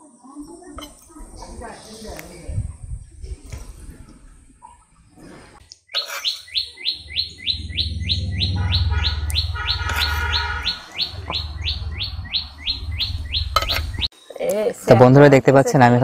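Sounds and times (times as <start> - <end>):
bird chirping: 4.2 - 14.1
low rumble: 6.6 - 14.1.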